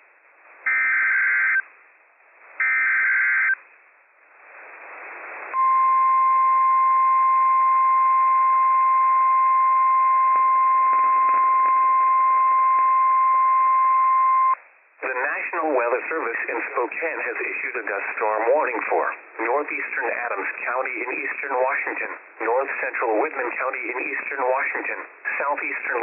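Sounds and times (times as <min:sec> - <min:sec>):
radio receiver hiss: 0:04.3 - 0:05.8, 0:15.0 - 0:26.0.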